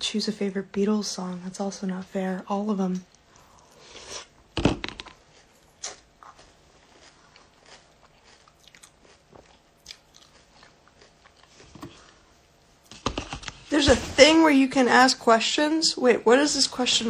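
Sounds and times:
person chewing crunchy cereal: 0:04.9 - 0:12.3.

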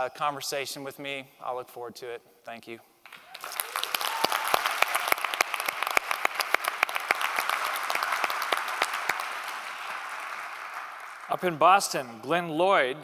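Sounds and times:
audience applauding: 0:03.1 - 0:12.1.

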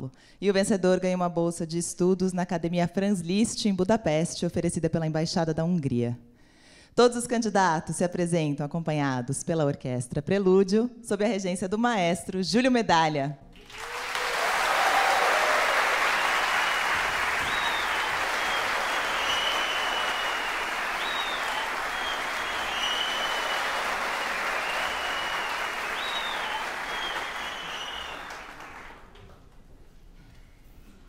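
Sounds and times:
audience applauding: 0:13.6 - 0:29.4.

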